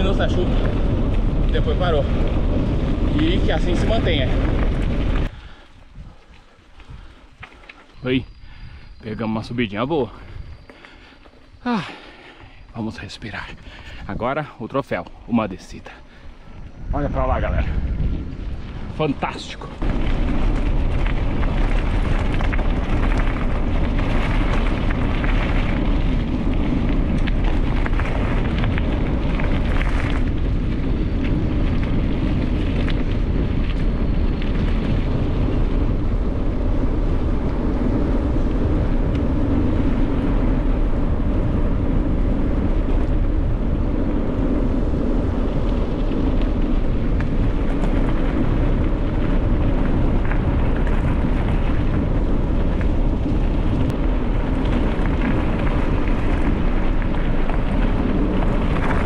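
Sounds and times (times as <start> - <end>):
bicycle tyres rumbling on gravel: 0.0 - 59.0
wind buffeting microphone: 0.0 - 59.0.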